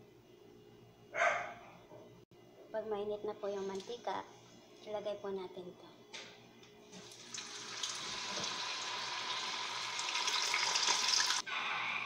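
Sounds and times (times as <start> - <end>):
dough sizzling in hot oil: 7.0 - 11.4.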